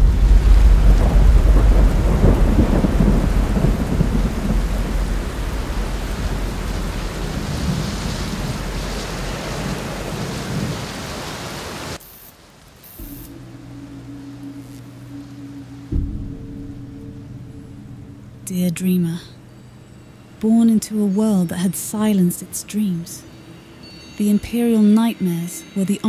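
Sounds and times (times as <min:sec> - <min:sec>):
low steady hum: 0:00.0 - 0:09.1, 0:13.0 - 0:26.0
deep thunder rumble: 0:00.0 - 0:11.5, 0:13.0 - 0:20.4
heavy rain: 0:00.0 - 0:23.9.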